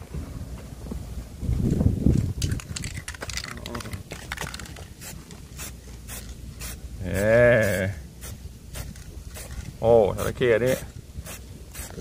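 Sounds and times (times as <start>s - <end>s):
spray can hissing: 4.2s - 12.0s.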